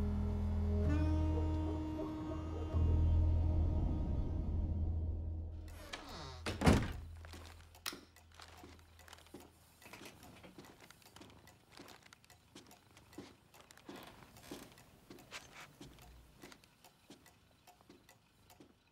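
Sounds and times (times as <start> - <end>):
low hum: 0.0 - 6.0
small clicks and taps: 7.2 - 18.9.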